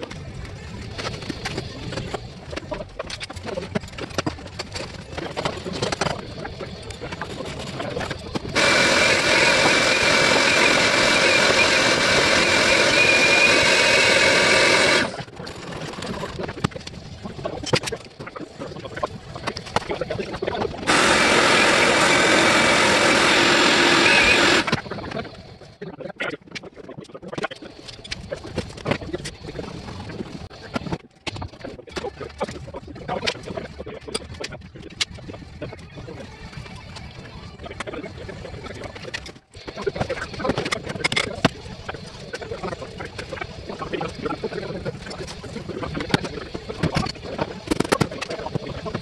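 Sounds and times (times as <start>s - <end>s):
vacuum cleaner running: 8.6s - 15.3s, 20.9s - 24.8s.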